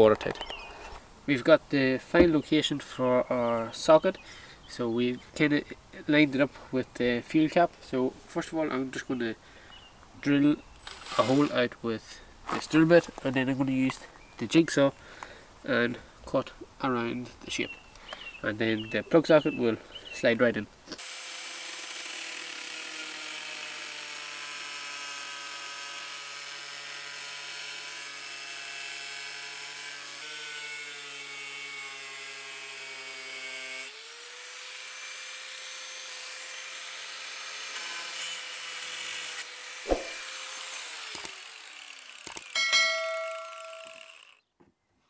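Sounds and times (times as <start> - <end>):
angle grinder cutting steel: 21.0 - 44.4
sharp knock: 39.9 - 40.2.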